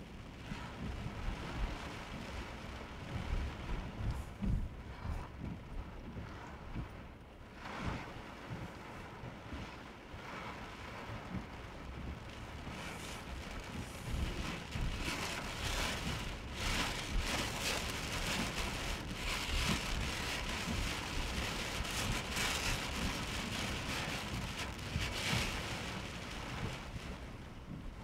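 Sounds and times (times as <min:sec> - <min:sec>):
low rumble: 0:00.0 - 0:09.6
heavy rain on a car: 0:00.0 - 0:28.0.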